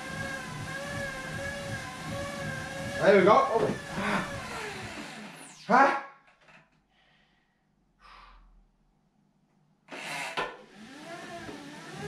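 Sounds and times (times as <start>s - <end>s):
bike tyres whirring on rollers: 0.0s - 5.4s
person breathing out: 3.9s - 4.4s, 6.9s - 8.6s.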